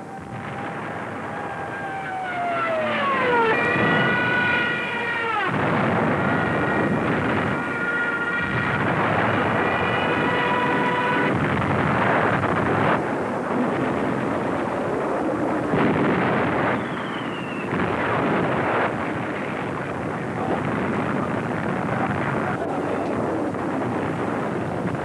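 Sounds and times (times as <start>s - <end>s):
battle engines and blasts: 0.0s - 25.0s
sharp bangs: 0.0s - 25.0s
short falling whistle: 16.7s - 17.7s.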